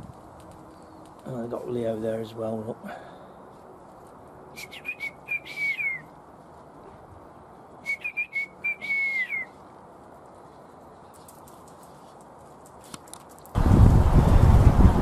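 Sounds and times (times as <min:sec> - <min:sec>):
person whistling calls: 0:04.6 - 0:06.1, 0:07.8 - 0:09.5.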